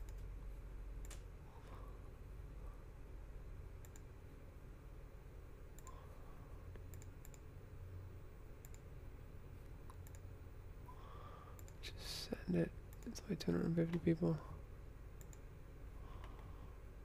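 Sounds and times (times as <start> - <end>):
computer mouse and key clicks: 0.0 - 0.3, 1.0 - 1.3, 3.8 - 4.1, 5.7 - 6.0, 6.7 - 7.5, 8.6 - 8.9, 9.6 - 10.3, 11.5 - 11.8, 15.2 - 15.4
low steady hum: 0.0 - 17.0.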